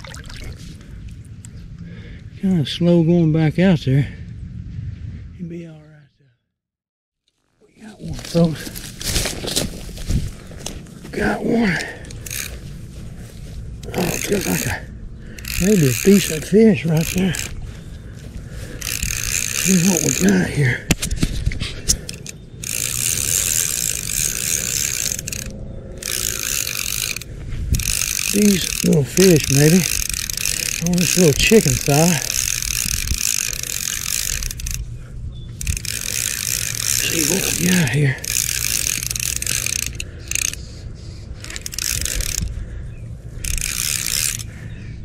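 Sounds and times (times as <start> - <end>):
fishing reel whirring: 0.0 - 0.6, 11.7 - 20.8, 21.8 - 45.0
fishing reel clicks: 11.8 - 12.6, 13.8 - 17.6, 18.6 - 20.7, 21.9 - 34.9, 35.6 - 42.7, 43.4 - 44.6.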